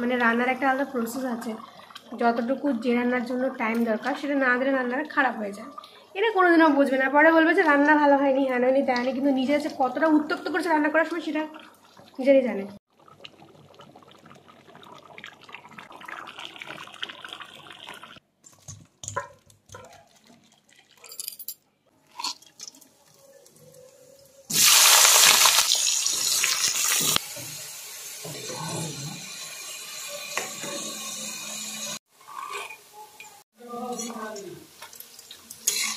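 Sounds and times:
pot of rice boiling: 9.0 - 19.3
food hissing in a pan: 24.5 - 32.0.

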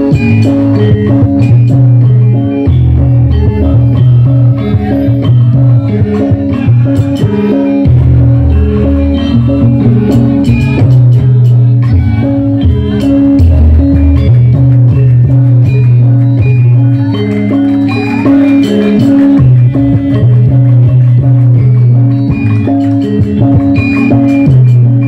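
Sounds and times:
amplified gamelan music: 0.0 - 25.0.

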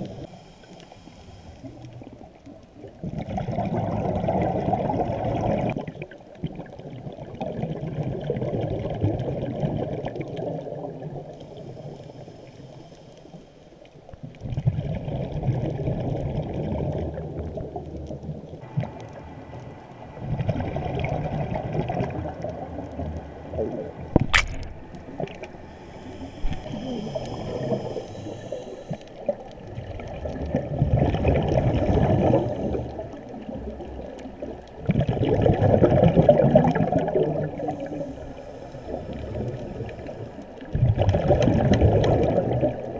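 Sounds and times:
muffled underwater sloshing: 0.0 - 42.9
sharp click: 24.2 - 24.7.

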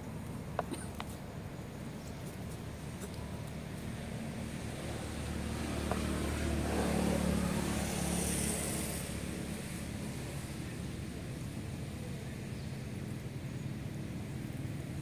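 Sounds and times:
vehicle engine passing by: 3.8 - 11.7.

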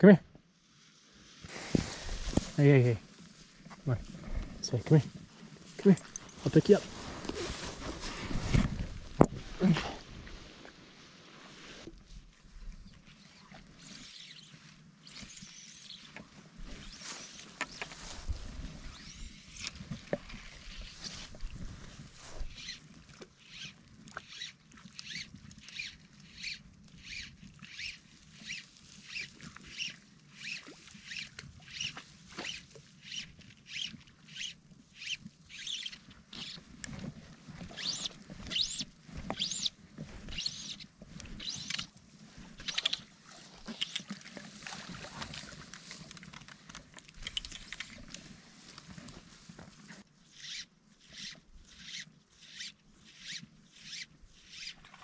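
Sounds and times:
fly line rasping through rod guides: 13.8 - 21.6, 22.4 - 49.2, 49.8 - 54.9.

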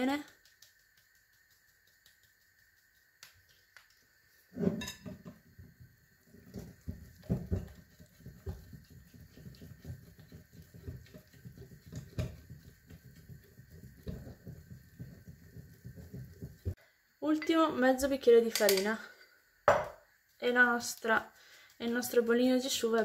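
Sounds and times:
whisk sloshing batter: 0.0 - 4.7, 5.8 - 16.8
whisk knocking glass bowl: 6.4 - 16.8.

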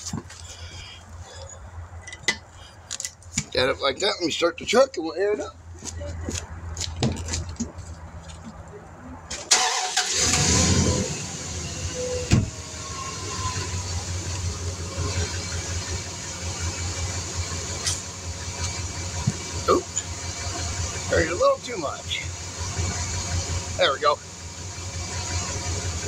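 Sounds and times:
truck engine running: 9.5 - 26.0.

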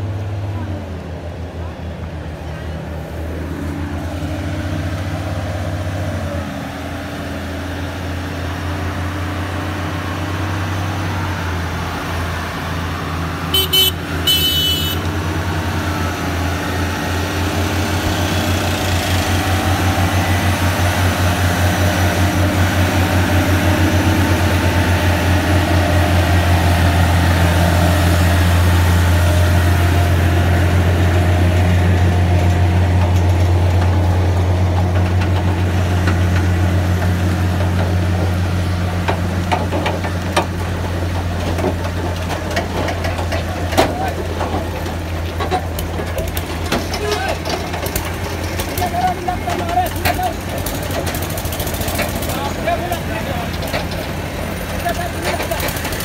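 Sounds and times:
truck diesel engine throbbing: 0.0 - 56.0
vehicle horn: 13.5 - 15.2.

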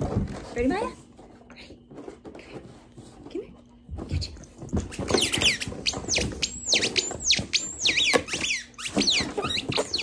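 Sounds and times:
squeaky dog toy squeaking: 5.1 - 10.0.

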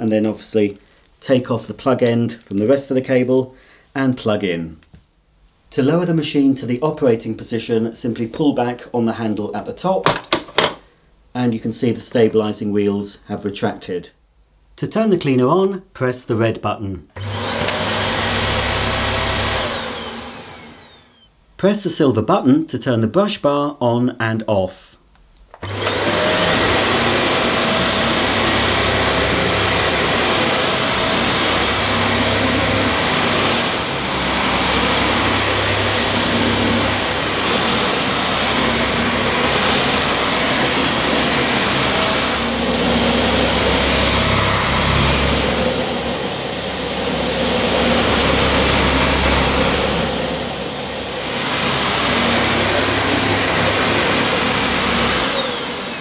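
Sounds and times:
vacuum cleaner whining on carpet: 17.2 - 21.3, 25.6 - 56.0.

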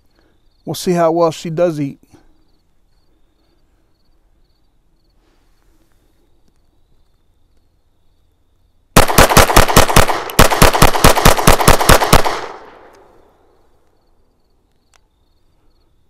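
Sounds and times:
pistol fired rapidly: 9.0 - 12.9.

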